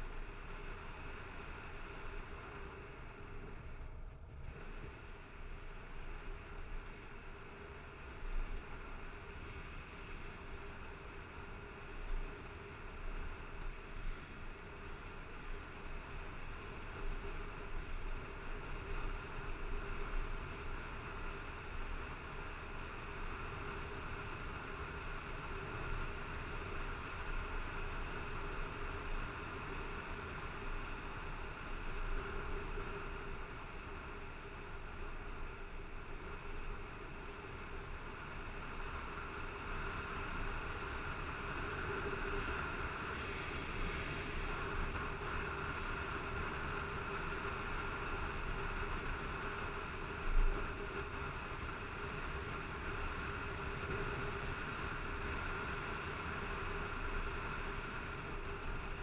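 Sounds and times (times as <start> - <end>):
motorcycle engine drone: 0.0 - 59.0.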